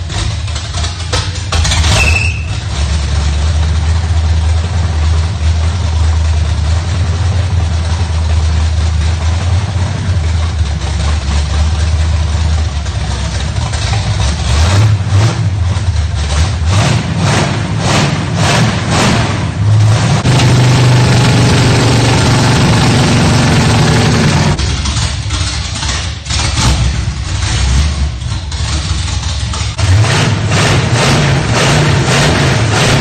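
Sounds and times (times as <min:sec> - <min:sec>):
car engine idling loudly: 0:00.0 - 0:33.0
engine revving: 0:14.2 - 0:33.0.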